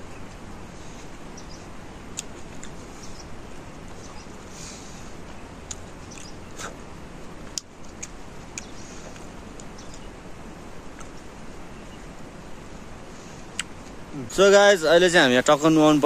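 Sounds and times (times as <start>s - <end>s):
man chewing juicy fruit: 2.1s - 5.0s, 5.6s - 10.1s, 13.2s - 13.9s.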